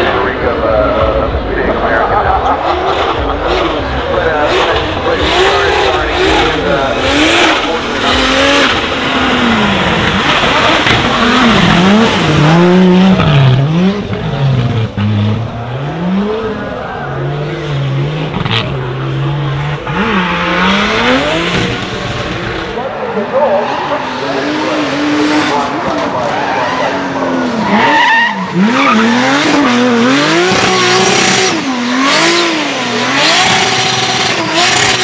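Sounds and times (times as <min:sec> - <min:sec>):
car engine revving: 0:00.0 - 0:35.0
tyres squealing and skidding: 0:22.6 - 0:35.0.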